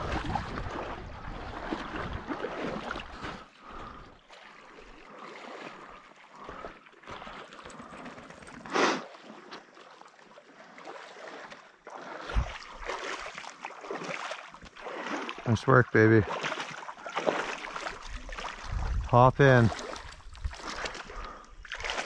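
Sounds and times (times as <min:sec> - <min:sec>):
water splashing around canoe: 0:00.0 - 0:22.0
loud splash: 0:16.2 - 0:18.7, 0:21.7 - 0:22.0.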